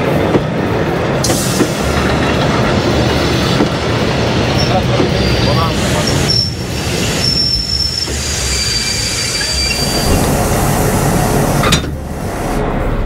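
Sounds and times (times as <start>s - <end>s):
train rumbling on rails: 0.0s - 13.0s
train wheels squealing: 4.5s - 10.1s.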